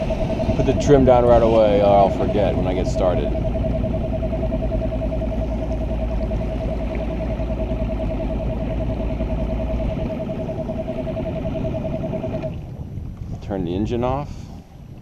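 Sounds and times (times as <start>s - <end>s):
outboard motor running: 0.0s - 13.5s.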